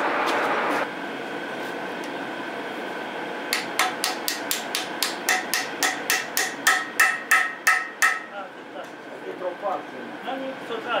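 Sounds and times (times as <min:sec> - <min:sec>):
hammer tapping on metal: 0:03.5 - 0:08.3.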